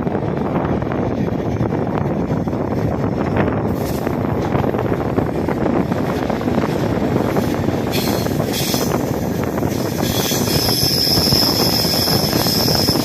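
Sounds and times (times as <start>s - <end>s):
train wheels rumbling on rails: 0.0s - 13.0s
high-pitched wheel squeal: 9.7s - 13.0s.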